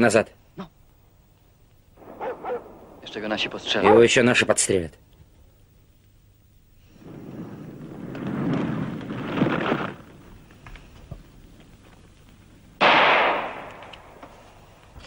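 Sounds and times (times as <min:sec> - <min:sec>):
loud crackling: 0:01.7 - 0:14.5
loud explosion: 0:02.0 - 0:05.1.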